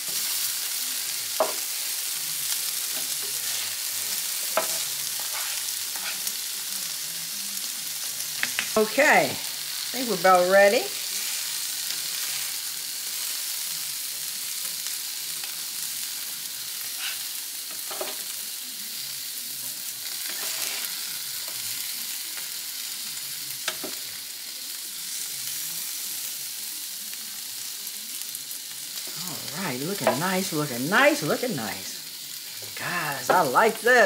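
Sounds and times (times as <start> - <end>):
food sizzling on a griddle: 0.0 - 34.0
spatulas scraping a griddle: 2.9 - 6.4, 11.0 - 12.6, 16.8 - 18.3, 20.1 - 21.7.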